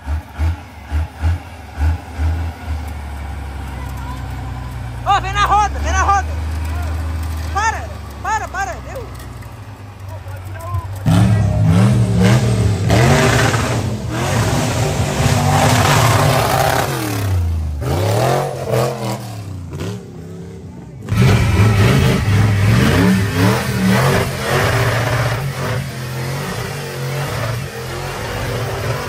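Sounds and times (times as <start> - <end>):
engine revving: 0.0 - 29.0.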